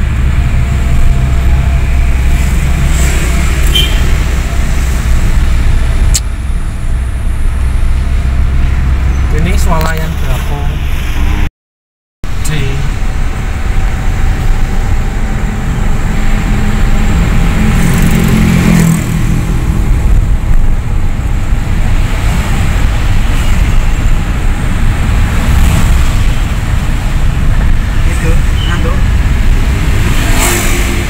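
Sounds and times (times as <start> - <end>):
car engine and road rumble: 0.0 - 11.5, 12.2 - 31.0.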